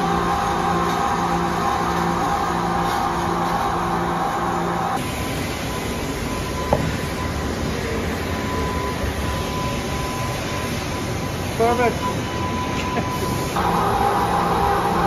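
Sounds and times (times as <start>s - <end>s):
low mechanical rumble: 0.0s - 5.6s, 13.6s - 15.0s
thin steady whine: 0.0s - 15.0s.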